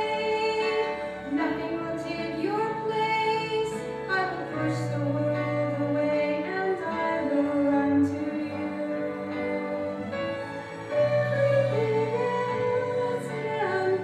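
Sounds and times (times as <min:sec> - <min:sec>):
low sustained accompaniment: 0:00.0 - 0:14.0.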